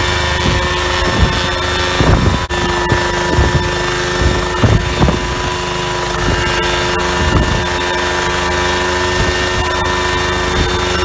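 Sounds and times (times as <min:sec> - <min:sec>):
helicopter engine drone: 0:00.0 - 0:11.0
low rushes: 0:00.0 - 0:11.0
rotor blades whooshing: 0:00.0 - 0:11.0.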